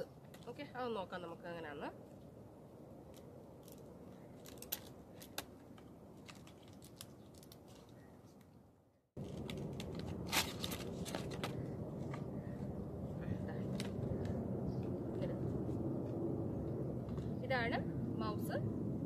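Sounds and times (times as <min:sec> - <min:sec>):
plastic packaging crinkling and tearing: 0:03.1 - 0:08.1, 0:09.2 - 0:11.7.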